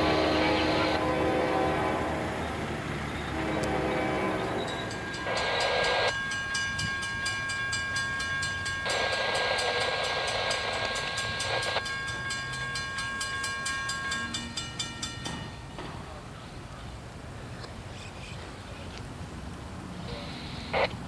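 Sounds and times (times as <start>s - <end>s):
train horn blasts: 0.0s - 6.1s
crossing warning bells ringing: 0.0s - 16.7s.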